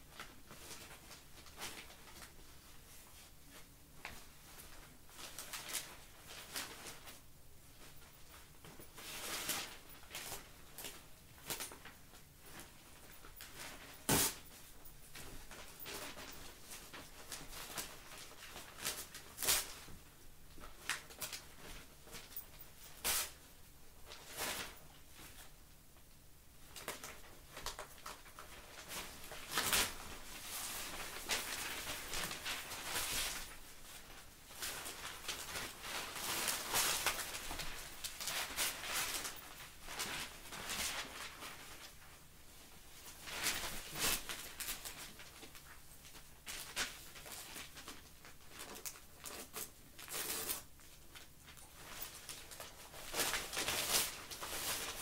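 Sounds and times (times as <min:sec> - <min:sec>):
newspaper rustling and tearing: 0:15.4 - 0:19.9, 0:26.8 - 0:42.0, 0:43.2 - 0:55.0.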